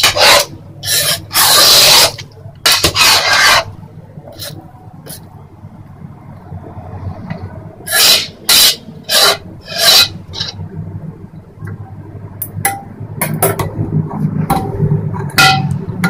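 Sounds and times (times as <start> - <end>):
metal spoon scraping a pot: 0.0 - 5.3, 7.9 - 10.6.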